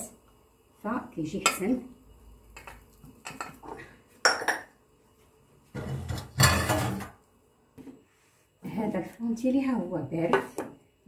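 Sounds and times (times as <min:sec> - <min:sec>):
dishes and utensils clinking: 0:05.8 - 0:07.2
kitchenware rattling: 0:05.8 - 0:07.2.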